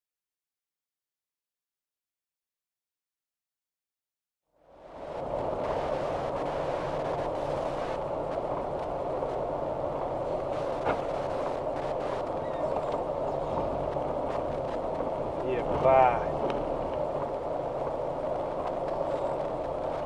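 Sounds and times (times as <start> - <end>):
car engine and road hum: 4.6 - 20.0.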